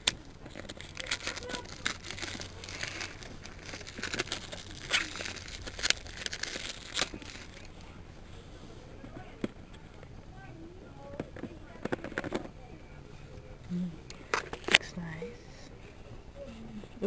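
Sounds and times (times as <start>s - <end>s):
plastic wrap tearing and crinkling: 0.0s - 8.0s.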